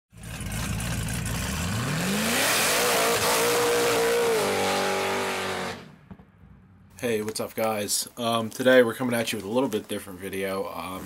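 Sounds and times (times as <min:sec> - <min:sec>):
engine revving hard: 0:00.2 - 0:06.0.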